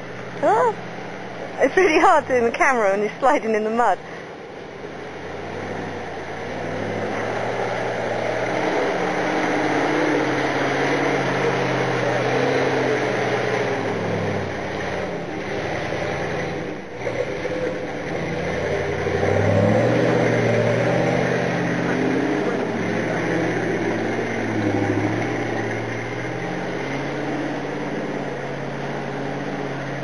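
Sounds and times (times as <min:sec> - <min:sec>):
truck engine driving through mud: 0:00.0 - 0:30.0.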